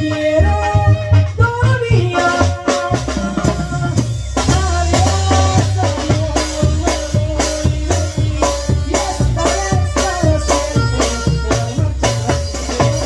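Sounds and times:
bass drum and cymbal beat: 0.0s - 13.0s
keyboard: 0.0s - 13.0s
saxophone melody: 8.0s - 13.0s.

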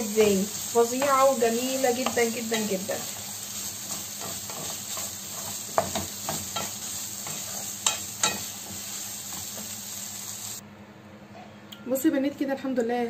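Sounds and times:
liver sizzling in a frying pan: 0.0s - 10.6s
wooden spoon stirring: 0.5s - 9.9s.

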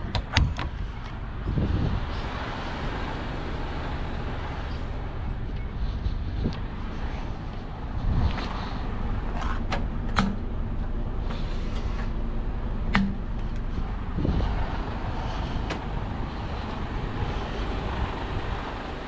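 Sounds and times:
truck engine rumbling: 0.0s - 19.0s
sharp clicks and knocks: 9.4s - 11.4s, 12.9s - 13.7s.

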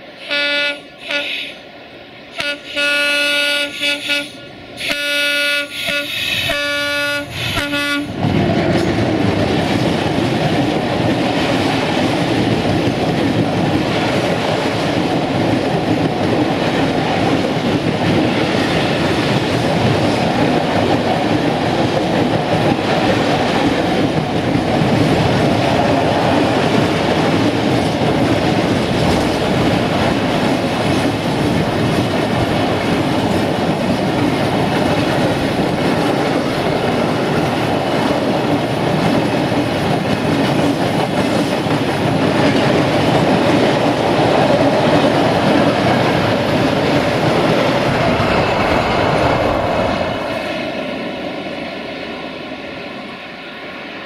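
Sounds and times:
train wheels rumbling on rails: 0.0s - 54.0s
locomotive horn blasts: 0.2s - 1.6s, 2.4s - 8.2s.

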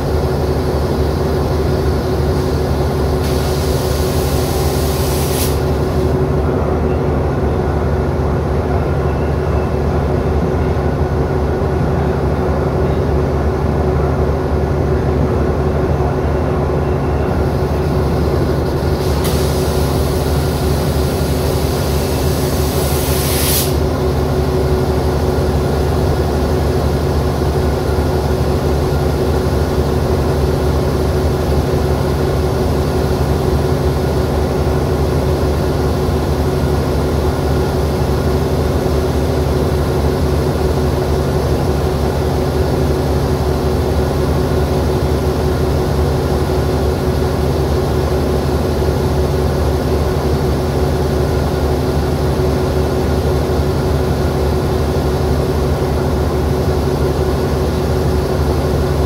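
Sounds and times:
diesel locomotive idling: 0.0s - 59.0s
compressed air hiss: 3.2s - 6.1s, 19.0s - 23.8s.

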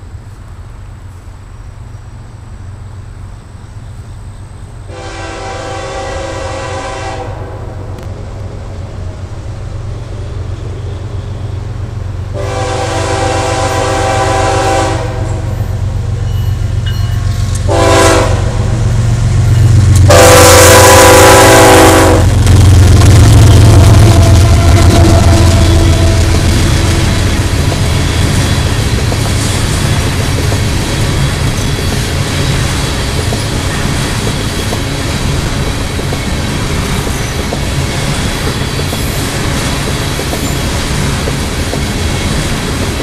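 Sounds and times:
locomotive rumble: 0.0s - 43.0s
locomotive air horn blasts: 4.9s - 8.0s, 12.3s - 15.8s, 17.2s - 19.0s, 20.0s - 22.4s, 23.5s - 27.2s.

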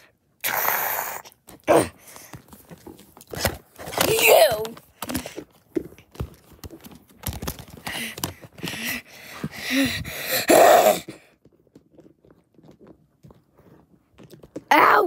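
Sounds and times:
voice hissing and growling: 0.4s - 1.3s
plastic toys knocking and clicking: 3.2s - 9.0s.

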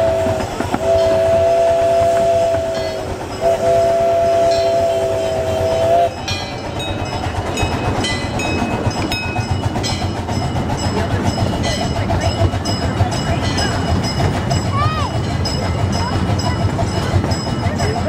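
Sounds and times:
steam locomotive whistle: 0.0s - 6.4s
train clicking and rattling: 0.0s - 18.0s.

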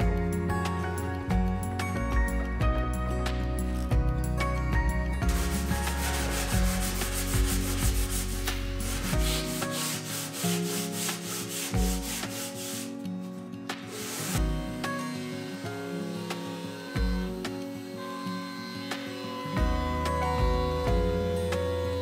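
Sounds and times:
sandpaper rubbing on wood: 5.3s - 13.1s, 13.9s - 15.6s.

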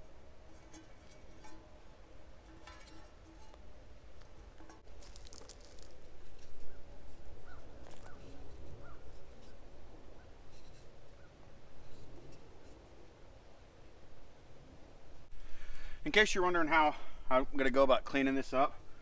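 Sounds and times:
wooden stick scratching and rustling: 0.0s - 13.2s
faint bird calls: 6.7s - 9.2s.

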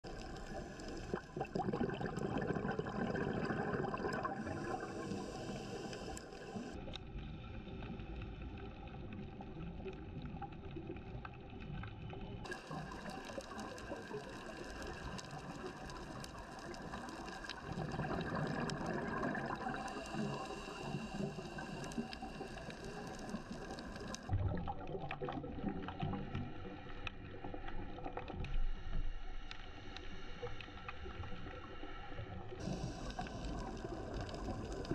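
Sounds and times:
underwater water noise: 0.0s - 34.9s
fine crackling clicks: 9.9s - 24.3s, 32.6s - 34.9s.

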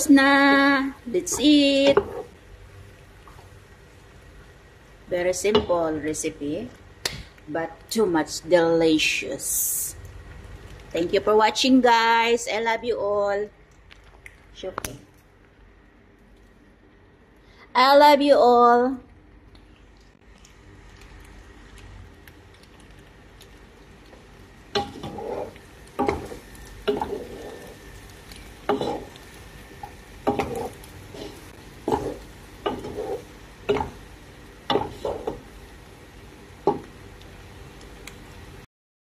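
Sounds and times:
wooden spoon stirring pasta: 20.2s - 35.7s.

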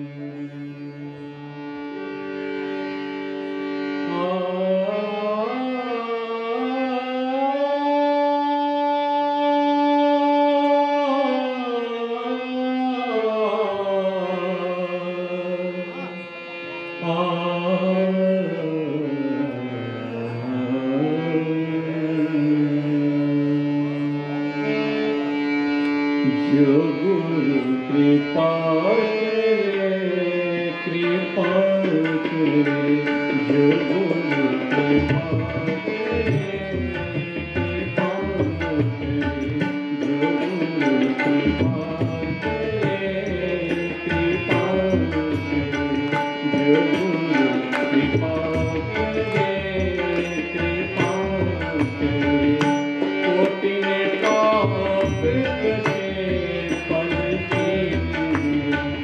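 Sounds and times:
harmonium and tanpura drone: 0.0s - 59.0s
tabla strokes: 35.0s - 53.5s, 54.2s - 59.0s.

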